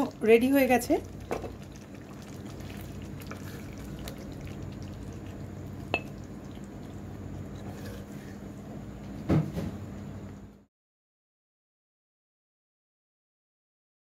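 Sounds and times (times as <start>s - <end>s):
curry scooping and plopping: 1.0s - 8.4s.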